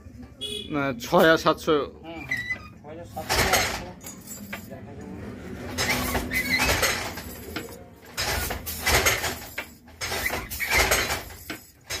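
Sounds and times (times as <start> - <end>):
wooden handloom clattering: 2.2 - 4.8, 5.5 - 12.0.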